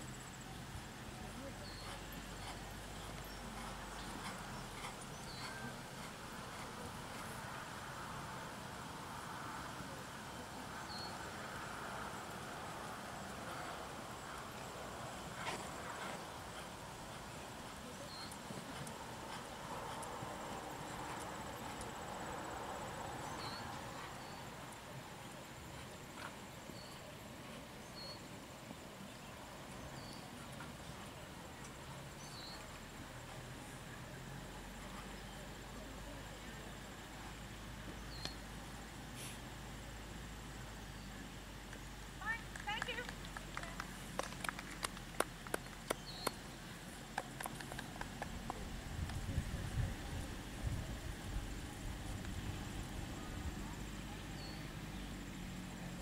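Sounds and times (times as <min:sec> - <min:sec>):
pony hooves clip-clopping: 0:01.2 - 0:07.5, 0:14.3 - 0:22.0, 0:42.2 - 0:49.9
hoofbeats on sand: 0:01.6 - 0:07.5.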